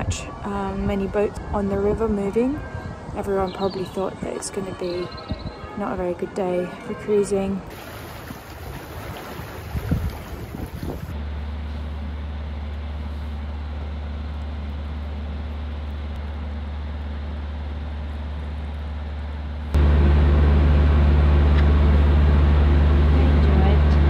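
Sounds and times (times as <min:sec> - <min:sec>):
boat engine droning: 0:11.0 - 0:24.0.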